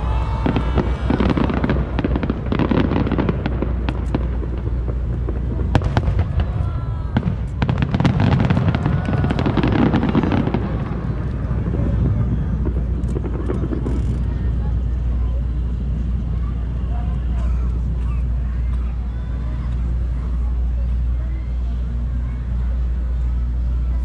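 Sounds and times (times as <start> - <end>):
fireworks booming and crackling: 0.0 - 21.2.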